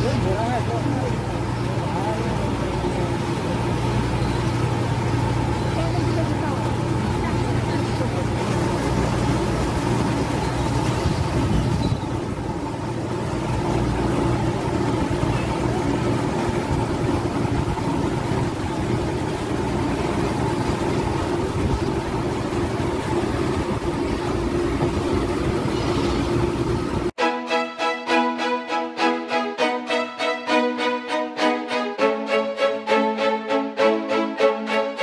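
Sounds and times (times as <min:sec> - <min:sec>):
ferry engines droning: 0:00.0 - 0:27.2.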